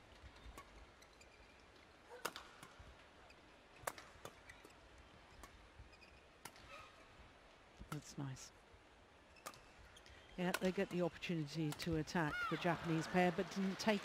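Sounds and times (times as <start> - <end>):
quiet arena background: 0.0 - 14.0
rackets striking shuttlecock: 2.1 - 2.8, 3.8 - 4.8, 6.4 - 6.8, 10.4 - 11.0.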